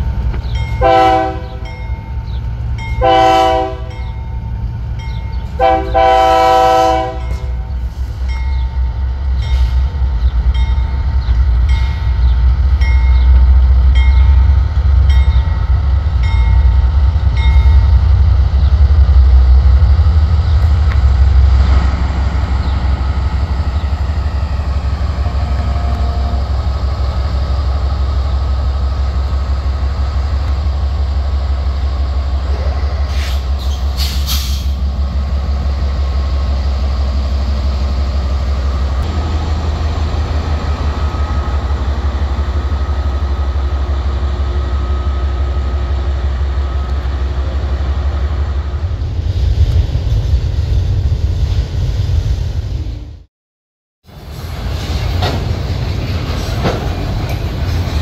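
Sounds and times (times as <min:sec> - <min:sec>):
locomotive bell ringing: 0:00.0 - 0:05.7, 0:08.3 - 0:09.9, 0:10.5 - 0:18.1
diesel locomotives rumbling past: 0:00.0 - 0:53.3, 0:54.0 - 0:58.0.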